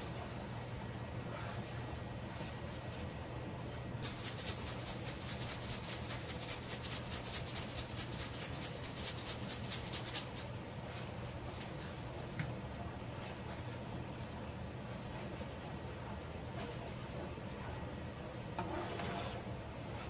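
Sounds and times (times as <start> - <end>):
low steady hum: 0.0 - 20.0
grated cheese shaken from container: 4.0 - 10.6.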